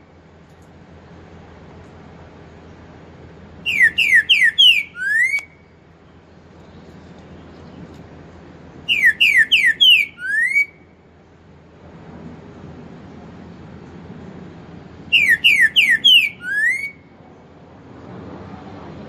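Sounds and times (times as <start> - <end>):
bird singing whistled phrases: 3.6 - 5.7, 8.9 - 10.8, 15.1 - 17.1.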